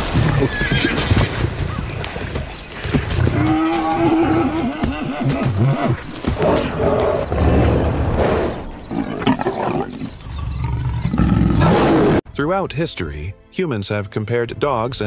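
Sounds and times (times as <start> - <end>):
big cat growling and roaring: 3.2 - 12.2.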